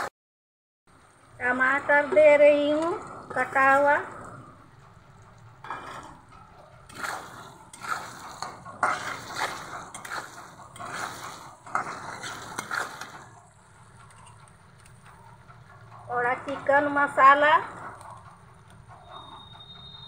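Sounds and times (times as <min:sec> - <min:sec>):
hot oil sizzling: 0:05.6 - 0:15.0
spatula scraping a pan: 0:06.9 - 0:13.4.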